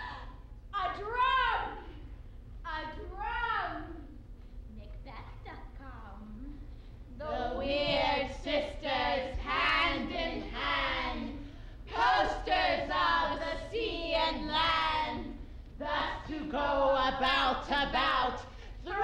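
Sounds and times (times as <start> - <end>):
women chanting in unison: 7.2 - 19.0.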